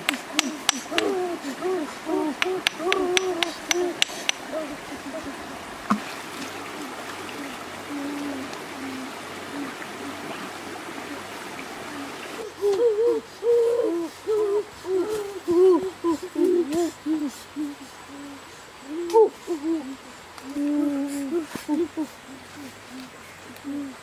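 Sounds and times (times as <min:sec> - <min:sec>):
short hooting calls: 0:00.0 - 0:05.8
stream water running and splashing: 0:00.0 - 0:24.0.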